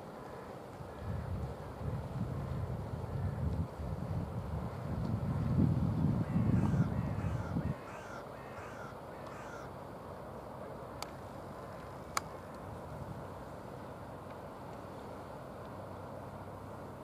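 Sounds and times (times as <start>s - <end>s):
bird calling: 6.2s - 9.8s.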